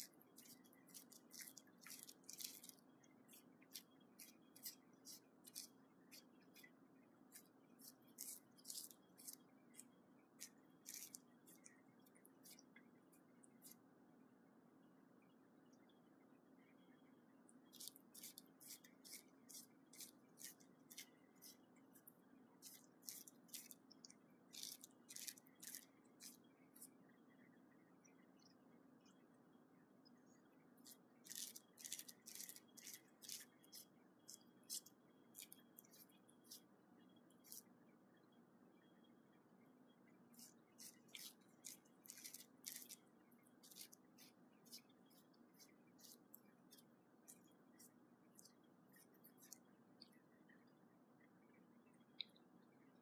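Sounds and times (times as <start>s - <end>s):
cat licking plastic wrap: 0.0s - 6.7s, 7.3s - 11.7s, 17.7s - 22.0s, 22.6s - 26.4s, 30.8s - 36.6s, 40.4s - 43.0s, 43.6s - 49.6s.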